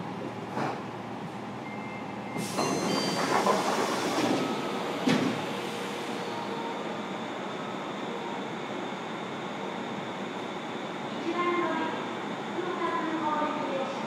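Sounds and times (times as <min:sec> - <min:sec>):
train wheels rumbling on rail: 0:02.3 - 0:06.3
high-pitched wheel squeals: 0:02.4 - 0:04.8.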